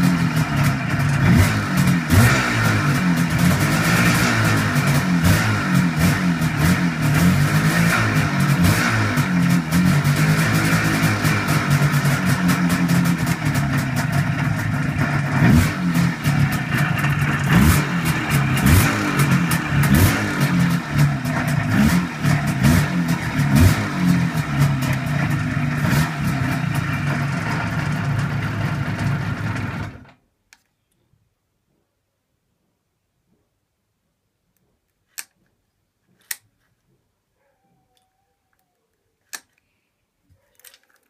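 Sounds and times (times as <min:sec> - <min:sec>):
motorcycle engine idling: 0:00.0 - 0:03.8, 0:04.4 - 0:30.1.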